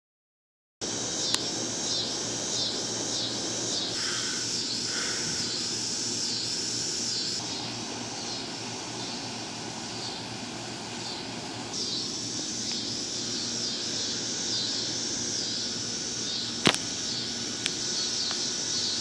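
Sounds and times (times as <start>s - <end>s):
insect chorus pulsing drone: 0.8s - 19.0s
sharp click: 16.6s - 16.9s.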